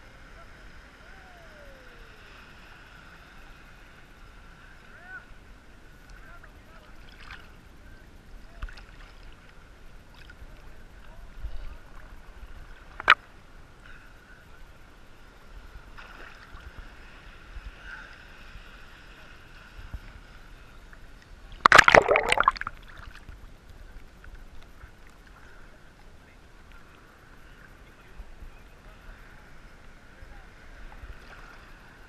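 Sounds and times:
small waves lapping: 0:00.0 - 0:14.3, 0:15.0 - 0:32.0
wave splashing over camera: 0:12.9 - 0:13.3, 0:21.6 - 0:23.4.

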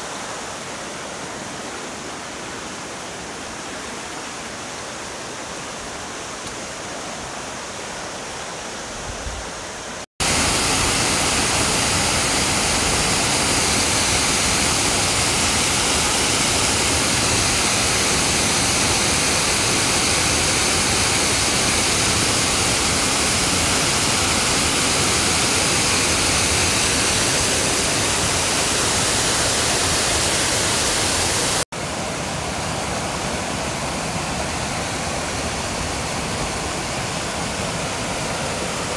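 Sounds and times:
waterfall pouring: 0:10.2 - 0:31.6.

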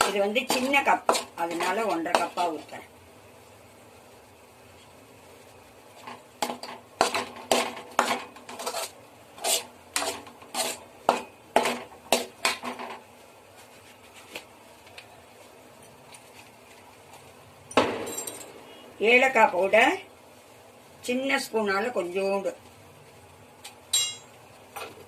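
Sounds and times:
metal spoon scraping a pan: 0:00.0 - 0:02.7, 0:06.0 - 0:13.0.

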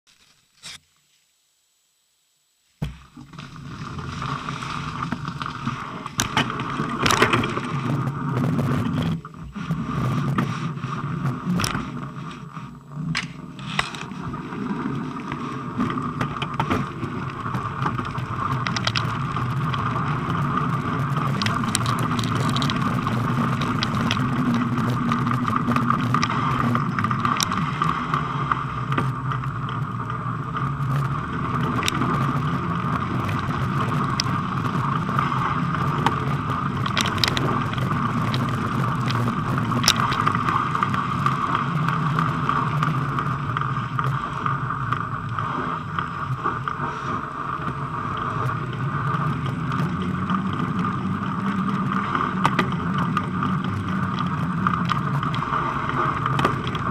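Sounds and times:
bicycle tyres rolling on snow: 0:02.7 - 0:56.9
bike clicks and rattles: 0:03.2 - 0:09.3, 0:10.0 - 0:56.9.

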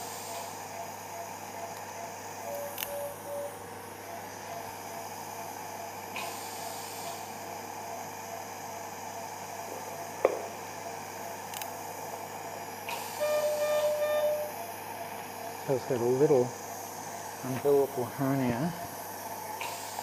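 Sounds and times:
equipment hum and hiss: 0:00.0 - 0:20.0
monitor beeps: 0:02.4 - 0:03.6, 0:13.2 - 0:14.6.

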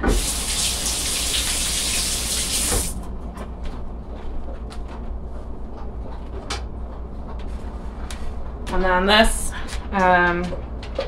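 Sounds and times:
kitchen tap running: 0:00.0 - 0:03.0.

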